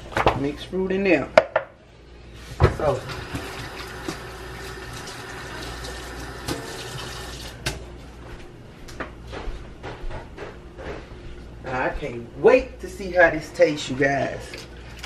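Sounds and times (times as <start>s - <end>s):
water running from a tap: 2.8s - 7.6s.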